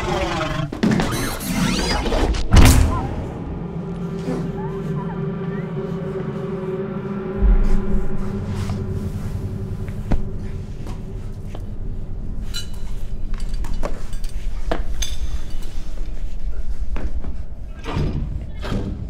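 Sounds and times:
low steady rumble: 5.2s - 15.0s.

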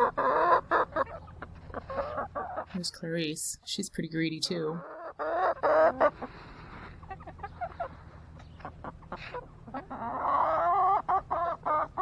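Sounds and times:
chickens clucking: 0.0s - 3.7s, 4.3s - 12.0s
chicken wavering call: 4.9s - 12.0s.

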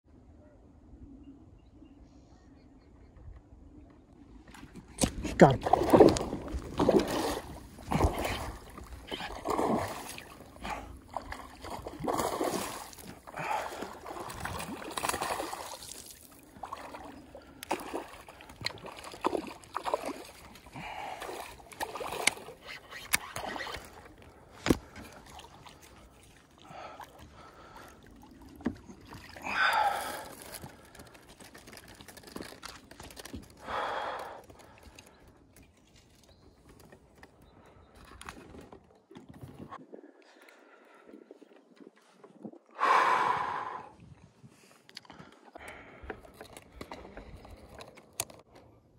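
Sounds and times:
knocks and clicks of fishing gear: 4.5s - 5.4s, 24.5s - 25.2s, 45.0s - 48.6s
light water splashing: 4.5s - 37.0s
person gasping: 29.4s - 31.0s, 33.6s - 34.9s, 42.8s - 44.0s.

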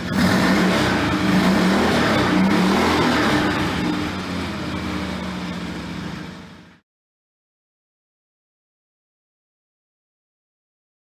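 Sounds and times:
vehicle engine revving: 0.0s - 6.8s.

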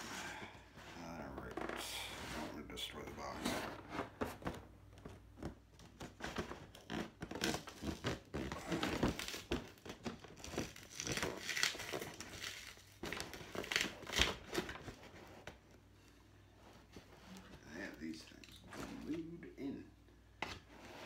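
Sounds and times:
cardboard packaging crinkling and tearing: 5.8s - 15.5s.

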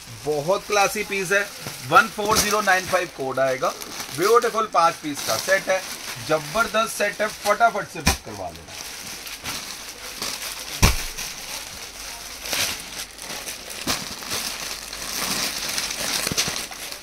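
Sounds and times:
plastic bags rustling and crinkling: 0.0s - 17.0s
sharp thump: 10.8s - 11.3s.

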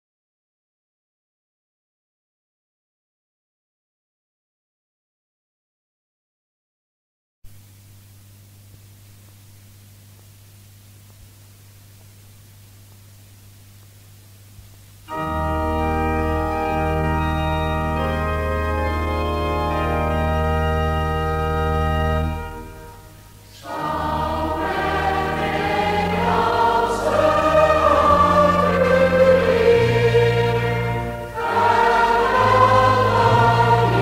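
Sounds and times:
record hiss: 7.4s - 34.0s
church organ: 15.0s - 34.0s
congregation singing a psalm: 23.5s - 34.0s.

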